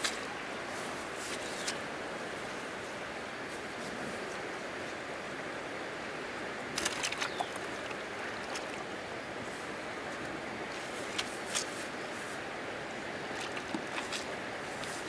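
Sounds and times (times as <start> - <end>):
flowing river water: 0.0 - 15.0
sharp clicks or splashes: 6.8 - 8.9, 13.3 - 15.0.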